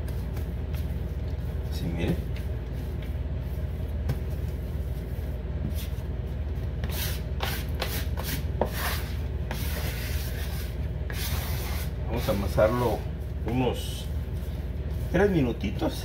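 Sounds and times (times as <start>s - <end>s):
hands kneading dough: 0.0s - 16.0s
steady low hum: 0.0s - 16.0s
bench scraper scraping counter: 6.8s - 12.3s.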